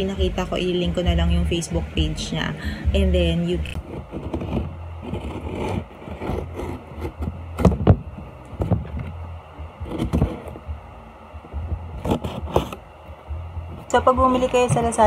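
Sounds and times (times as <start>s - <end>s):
cardboard scraping and rustling: 3.7s - 9.2s, 9.8s - 10.6s, 11.6s - 12.8s.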